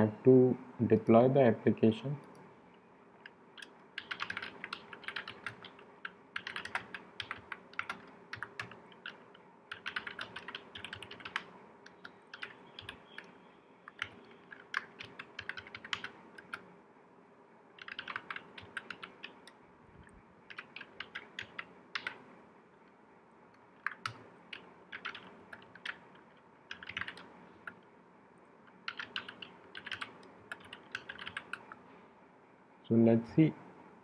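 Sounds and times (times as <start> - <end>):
typing on a computer keyboard: 3.6 - 16.6, 17.8 - 19.6, 20.5 - 22.2, 23.8 - 27.8, 28.8 - 31.8.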